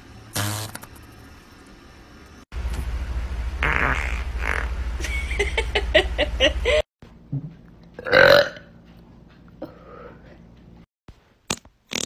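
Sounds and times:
low hum: 0.9s - 7.9s
woman belching loudly: 8.0s - 8.7s.

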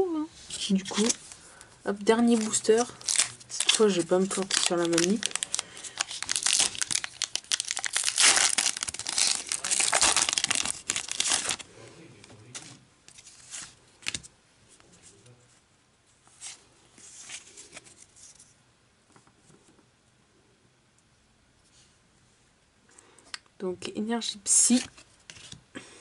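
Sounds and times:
cards rustling and tapping: 2.1s - 11.6s
foil pack crinkling and tearing: 2.1s - 11.6s.

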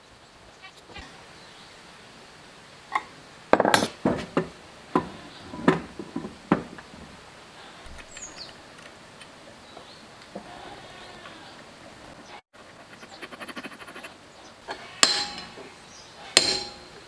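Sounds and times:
sharp metal clanks and knocks: 14.7s - 17.0s.

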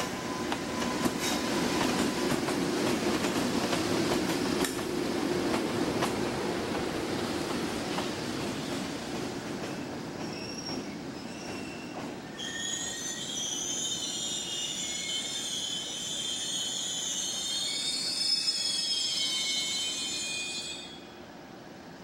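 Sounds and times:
train wheels squealing: 0.0s - 2.3s, 9.7s - 21.2s.

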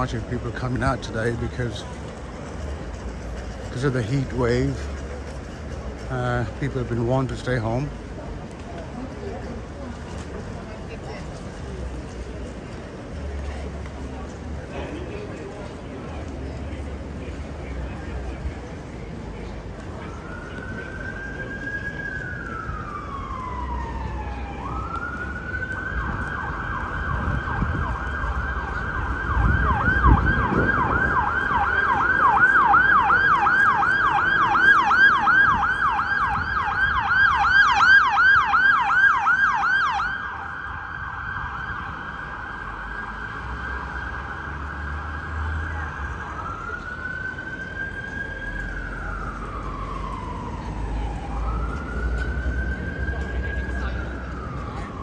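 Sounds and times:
traffic rumbling: 0.0s - 55.0s
emergency vehicle siren: 15.6s - 55.0s.

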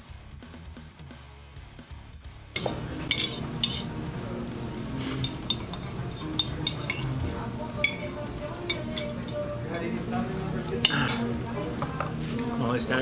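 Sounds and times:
cutlery clinking on plates: 2.6s - 4.0s, 5.0s - 9.6s, 10.6s - 12.1s.

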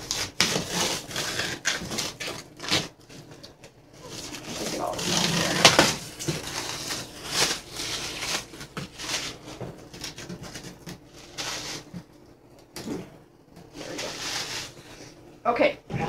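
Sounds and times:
plastic film crinkling: 0.0s - 12.0s.

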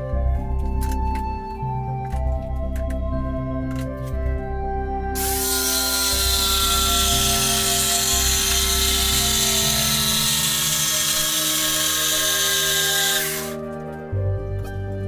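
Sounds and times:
background music: 0.0s - 15.0s
electric jigsaw cutting wood: 5.2s - 13.6s.

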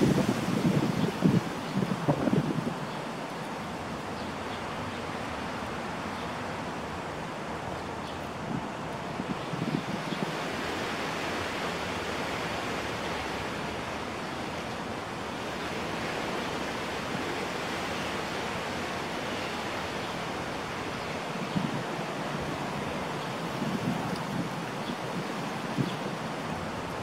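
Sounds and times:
wind gusts buffeting microphone: 0.0s - 7.6s, 8.3s - 27.0s
rushing wind: 0.0s - 27.0s.

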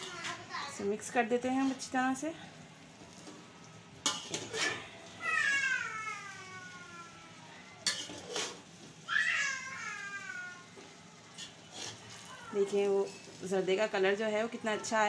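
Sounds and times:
metal spoon scraping a pot: 4.0s - 5.0s, 7.8s - 8.7s, 11.3s - 13.5s.

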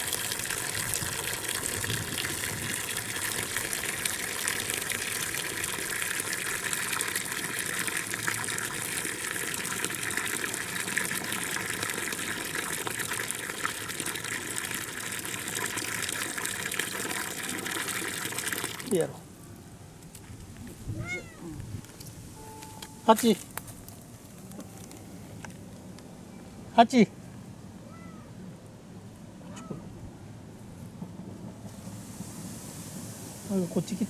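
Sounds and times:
water pouring into stone basin: 0.0s - 19.0s.

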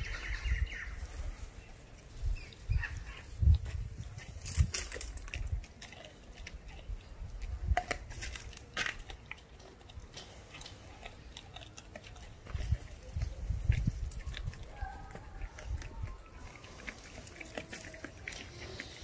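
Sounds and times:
puppy chewing meat and bone: 1.6s - 19.0s.

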